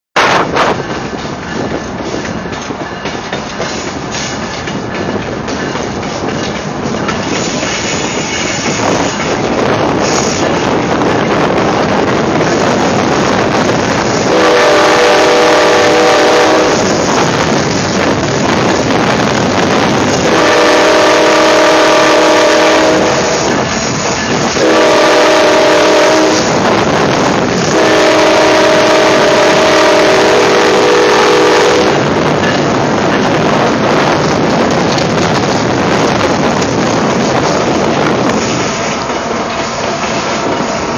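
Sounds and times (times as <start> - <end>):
constant rushing noise: 0.2 - 40.9
locomotive air horn blasts: 14.2 - 16.9, 20.2 - 23.5, 24.6 - 26.6, 27.6 - 32.0.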